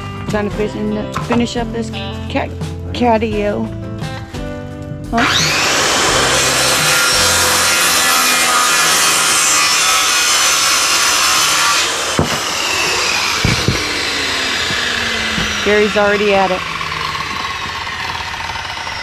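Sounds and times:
power saw cutting wood: 5.2 - 19.0
knocks: 12.2 - 12.5, 13.3 - 16.0.

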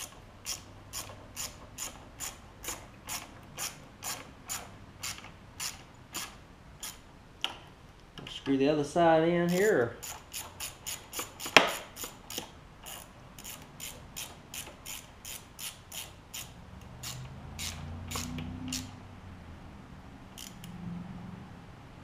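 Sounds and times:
ratchet wrench clicking: 0.0 - 7.6, 9.5 - 19.0, 20.3 - 20.8.

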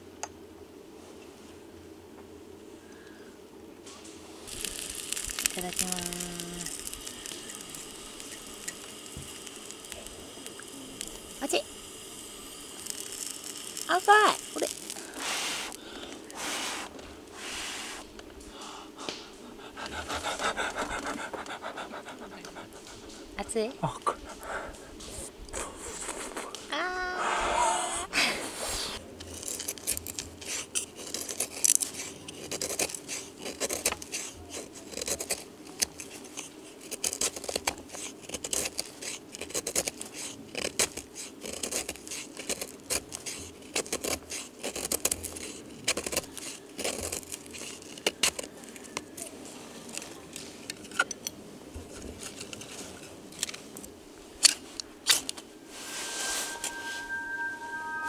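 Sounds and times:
sparks struck scraping: 4.4 - 15.8, 55.7 - 58.0
knife scraping wood: 28.6 - 49.0.

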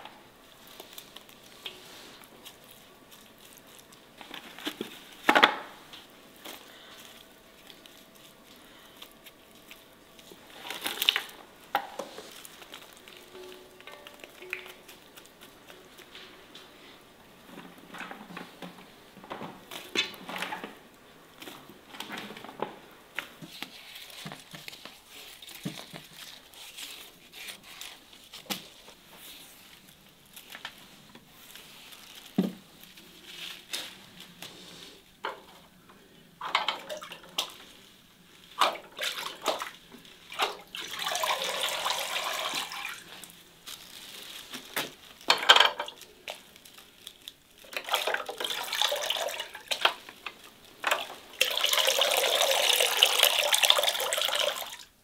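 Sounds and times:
water dripping: 12.7 - 16.1
running water trickling: 38.5 - 43.3, 47.6 - 54.9
water splashing in metal bucket: 47.7 - 50.0.

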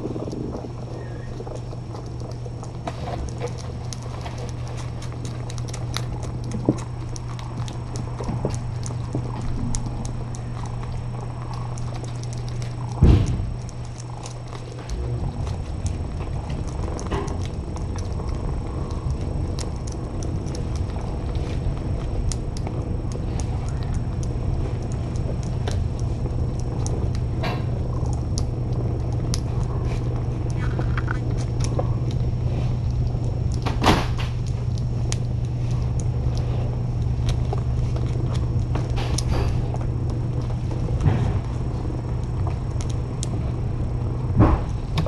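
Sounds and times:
cat purring: 0.0 - 33.7
kittens eating from a plate: 0.0 - 45.0.

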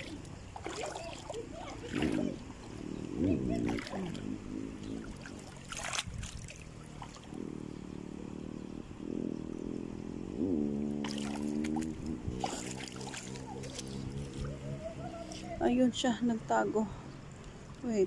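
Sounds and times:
feet wading through water: 0.0 - 7.4, 11.0 - 15.6
water splashing and trickling: 0.0 - 7.4, 11.0 - 18.0.

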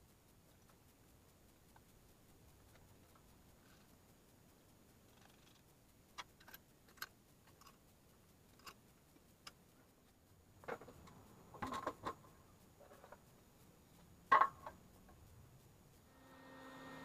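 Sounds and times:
small metal clicks and ticks: 0.0 - 17.0
clatter of knocks from parts: 10.6 - 13.3, 14.3 - 14.8.

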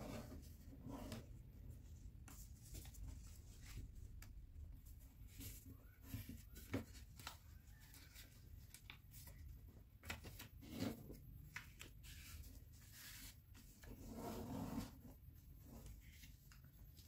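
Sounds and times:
paper rustling and crinkling: 2.2 - 4.4, 5.2 - 14.0.

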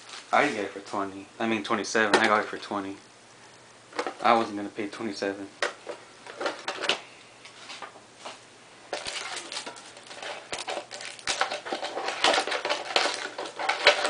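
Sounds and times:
foil wrapper crinkling: 8.9 - 14.0.

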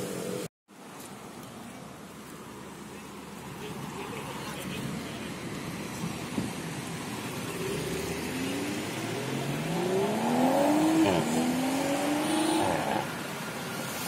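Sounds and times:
car engine accelerating hard: 7.1 - 13.2.

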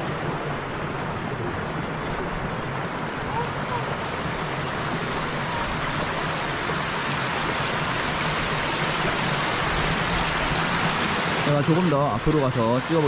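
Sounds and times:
water rushing down a channel: 0.0 - 13.0.

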